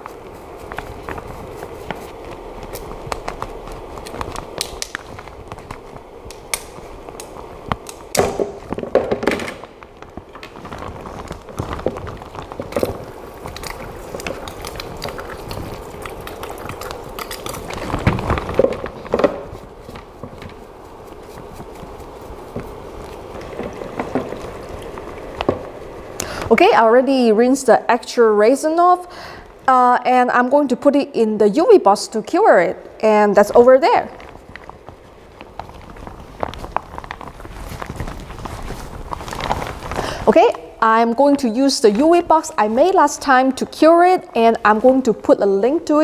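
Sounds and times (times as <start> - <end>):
liquid swishing and scrubbing: 0.0 - 7.7, 10.1 - 26.9, 33.7 - 44.3.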